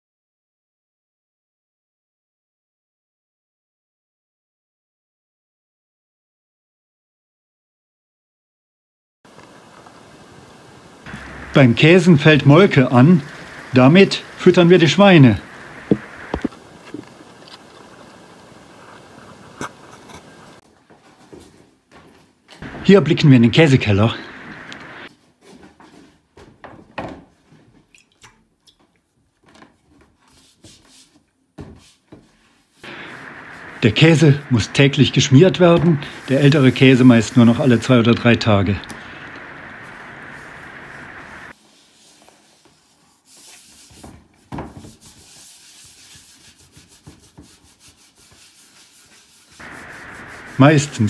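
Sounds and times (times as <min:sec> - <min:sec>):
bristle brush scrubbing cheese rind: 0:35.6 - 0:38.1, 0:44.9 - 0:51.0.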